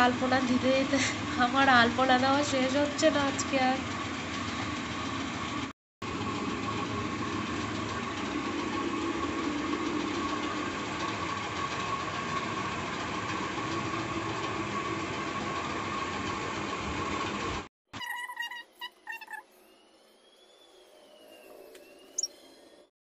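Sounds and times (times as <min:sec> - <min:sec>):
steady mechanical drone: 0:00.0 - 0:17.7.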